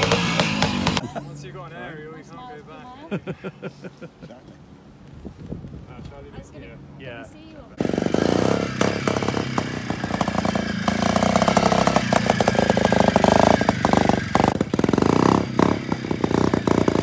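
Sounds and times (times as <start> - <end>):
motorcycle engine revving: 0.0 - 1.2, 7.7 - 17.0.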